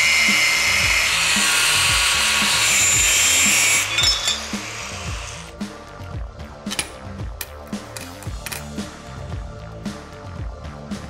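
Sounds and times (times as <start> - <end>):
angle grinder cutting steel: 0.0 - 5.5
background music with beat: 0.0 - 11.0.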